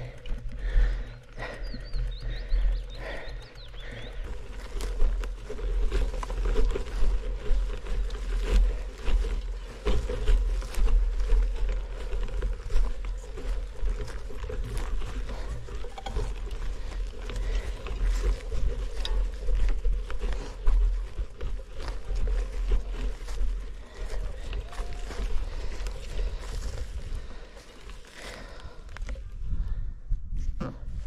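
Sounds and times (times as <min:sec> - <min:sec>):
bicycle tyres on gravel: 0:00.0 - 0:29.6
wind buffeting microphone: 0:28.4 - 0:31.0.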